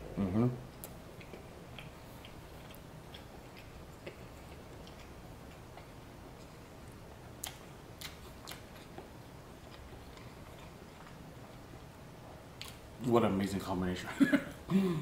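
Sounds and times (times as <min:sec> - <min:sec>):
person chewing with wet mouth clicks: 0:00.7 - 0:06.6, 0:07.4 - 0:11.2.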